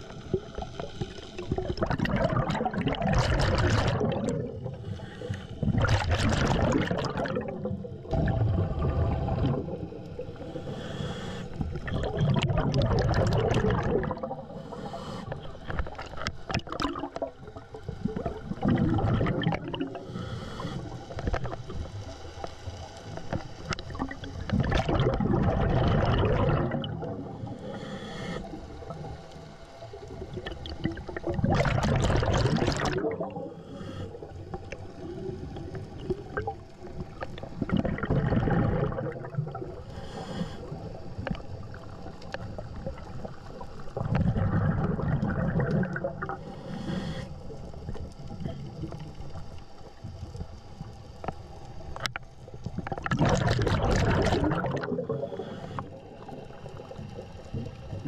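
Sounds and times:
exhaled bubbles gurgling underwater: 0.0s - 58.0s
regulator hiss of inhaled air: 4.8s - 5.7s, 10.4s - 11.7s, 14.4s - 15.7s, 19.9s - 21.2s, 27.2s - 28.9s, 33.4s - 34.4s, 39.8s - 41.2s, 46.3s - 47.8s, 55.2s - 56.4s.

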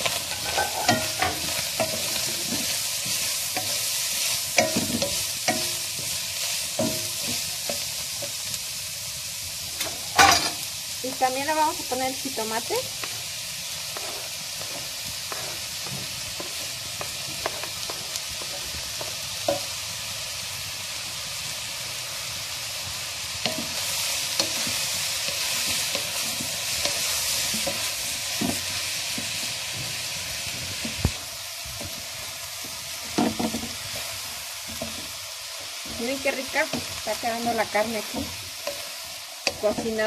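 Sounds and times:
food sizzling in a pan: 0.0s - 40.0s
wooden spoon tapping and scraping: 13.9s - 19.7s, 23.5s - 29.9s.

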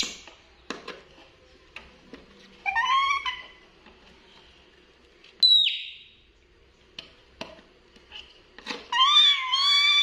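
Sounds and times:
monkey squealing: 2.6s - 3.6s, 8.9s - 10.0s.

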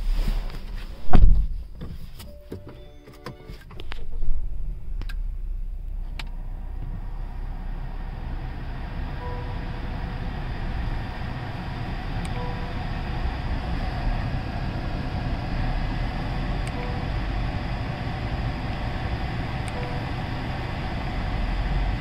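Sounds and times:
car engine starting: 0.0s - 22.0s
car engine idling: 3.8s - 22.0s
short dashboard warning beeps: 9.1s - 9.8s, 12.2s - 12.8s, 16.7s - 17.2s, 19.7s - 20.2s.

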